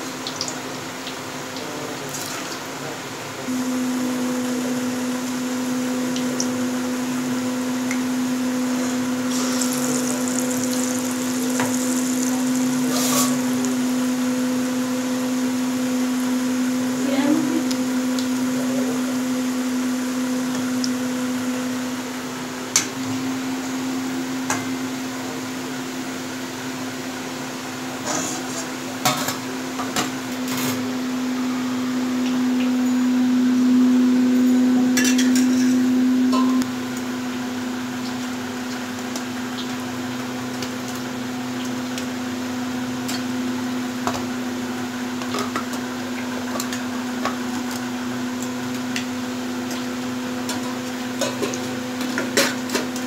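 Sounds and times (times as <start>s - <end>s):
steady mechanical hum: 0.0s - 53.0s
steady hum: 3.5s - 6.2s, 8.1s - 14.8s
food sizzling in oil: 3.5s - 16.8s.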